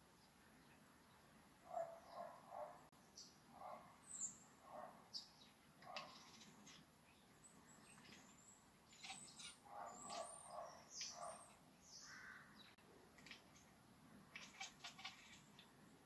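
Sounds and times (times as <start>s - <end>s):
faint short chirping calls: 5.1s - 13.7s
cat chattering: 5.8s - 6.8s, 8.9s - 11.7s, 13.2s - 15.8s.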